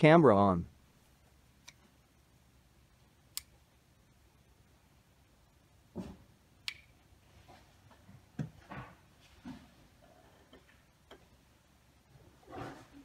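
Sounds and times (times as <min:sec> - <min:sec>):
sharp click: 0:06.6 - 0:06.9.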